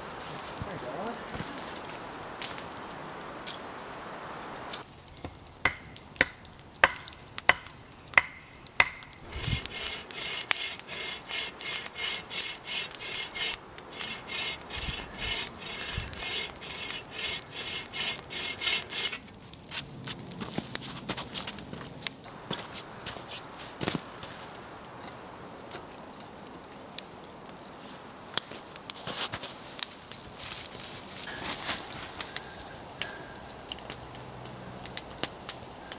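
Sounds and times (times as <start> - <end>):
sharp wooden knocks: 5.6 - 10.8
hand saw cutting a branch: 8.8 - 19.2.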